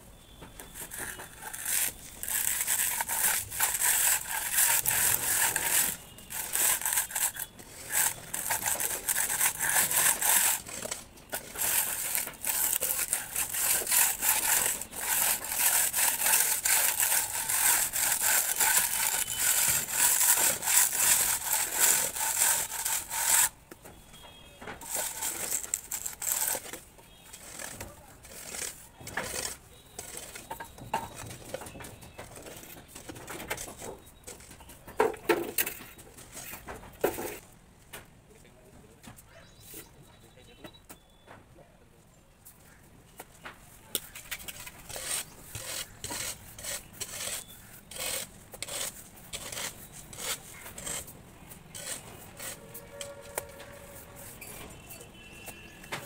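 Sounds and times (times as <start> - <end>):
straightedge scraping plaster: 0.6 - 23.6, 24.8 - 31.4, 43.9 - 56.0.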